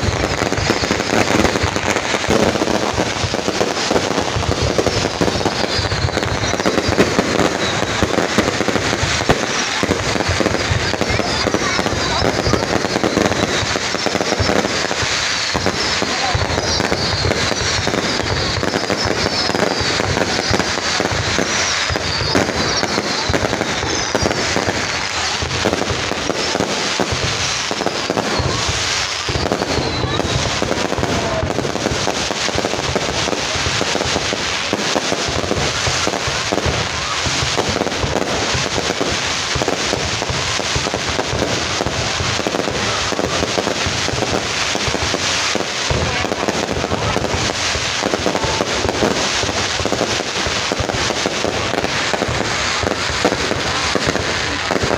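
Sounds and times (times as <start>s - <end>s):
fireworks crackling: 0.0s - 54.9s
fireworks shells bursting: 0.0s - 54.9s
high falling whistles: 3.8s - 8.3s, 12.1s - 25.2s, 27.5s - 30.6s.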